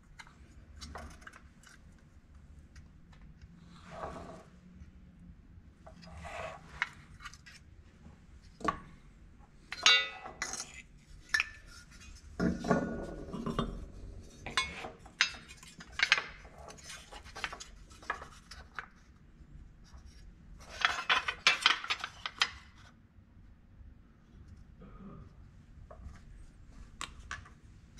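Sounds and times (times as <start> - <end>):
metal part ringing: 9.7 - 10.4.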